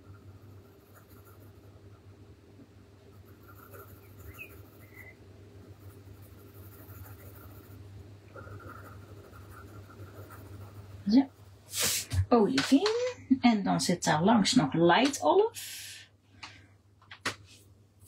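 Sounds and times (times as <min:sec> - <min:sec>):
coloured pencil scratching on paper: 0:00.0 - 0:01.8, 0:03.1 - 0:11.2
steady low hum: 0:00.0 - 0:18.0.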